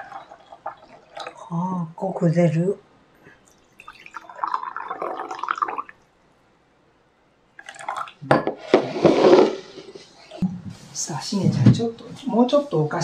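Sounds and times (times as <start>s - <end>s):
tea pouring into a cup: 3.5s - 6.0s, 7.6s - 8.3s.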